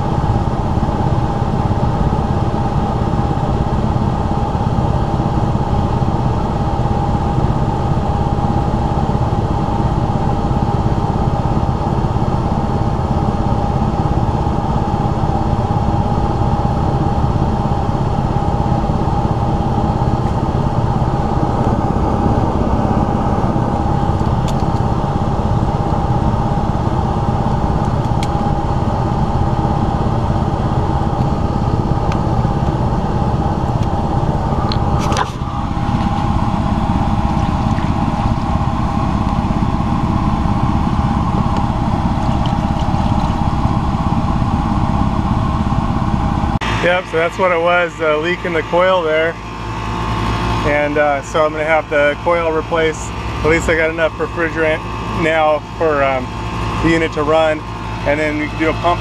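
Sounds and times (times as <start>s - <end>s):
air conditioner blower running: 0.0s - 59.0s
constant whine: 0.0s - 59.0s.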